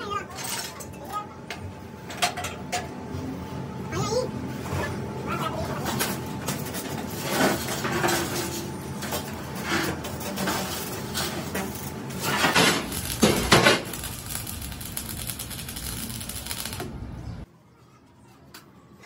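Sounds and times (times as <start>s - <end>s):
electric arc welding crackling: 10.7s - 17.2s.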